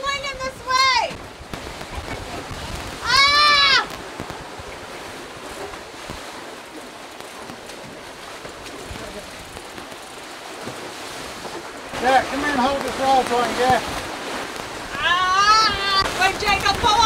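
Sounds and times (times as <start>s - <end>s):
surf: 0.0s - 17.0s
wind: 0.0s - 17.0s
shrill rising and falling cry: 3.0s - 3.9s.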